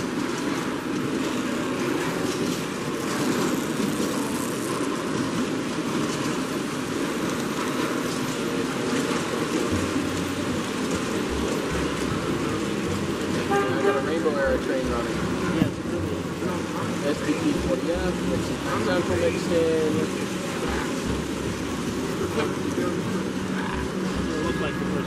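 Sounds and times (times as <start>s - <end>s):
model train rolling: 0.0s - 25.0s
exhibition hall background noise: 6.9s - 25.0s.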